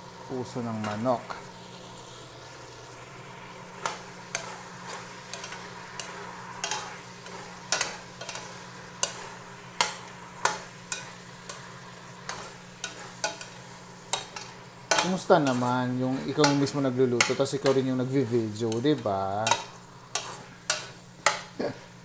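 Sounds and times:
meat sizzling in a pot: 0:00.0 - 0:22.0
spoon scraping metal pot: 0:18.7 - 0:21.6.

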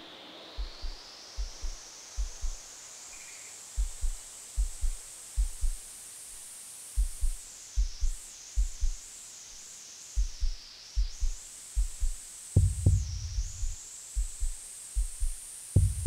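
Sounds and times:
high filtered synth hiss: 0:00.0 - 0:16.0
deep kick drum pulse: 0:00.6 - 0:02.6, 0:03.8 - 0:05.8, 0:07.0 - 0:09.0, 0:10.2 - 0:16.0.

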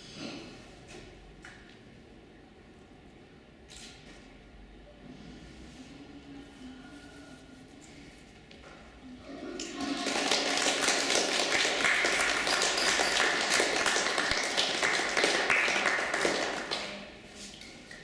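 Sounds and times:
audience applauding: 0:09.3 - 0:17.2.

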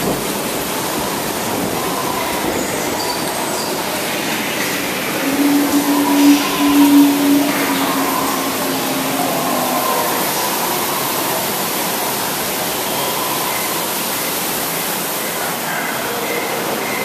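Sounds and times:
rushing water and ride machinery: 0:00.0 - 0:17.0
held tone: 0:04.6 - 0:11.4.

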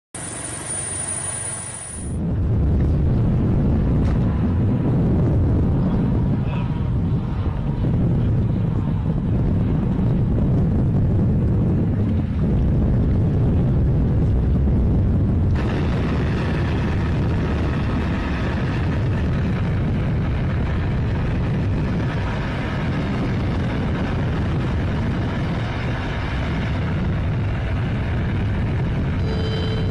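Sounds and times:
wind and boat rumble: 0:00.2 - 0:29.9.

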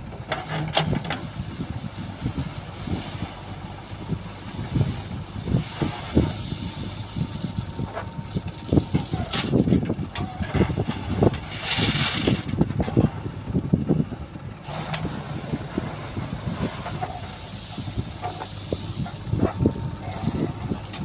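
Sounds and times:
backhoe diesel engine working: 0:00.0 - 0:21.0
stone chips pouring into metal trolley: 0:05.8 - 0:12.6, 0:17.2 - 0:21.0.

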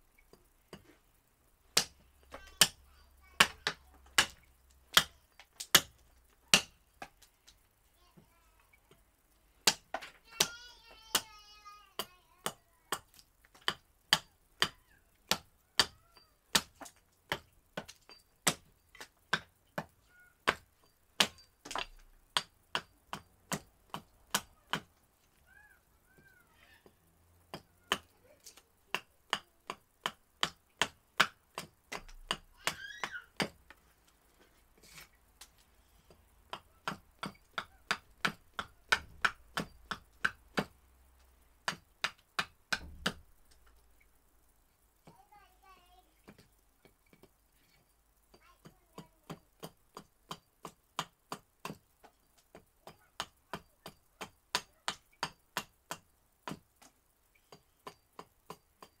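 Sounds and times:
axe chopping wood: 0:01.8 - 0:02.8, 0:03.4 - 0:07.2, 0:09.6 - 0:10.6, 0:12.0 - 0:20.6, 0:21.2 - 0:24.9, 0:28.9 - 0:33.6, 0:36.5 - 0:40.7, 0:41.6 - 0:43.2, 0:49.0 - 0:51.8, 0:52.5 - 0:56.6.

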